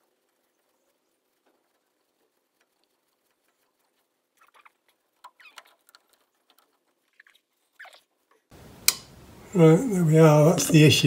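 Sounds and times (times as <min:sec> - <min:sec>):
metallic squeaks and clicks: 0:00.0 - 0:08.5.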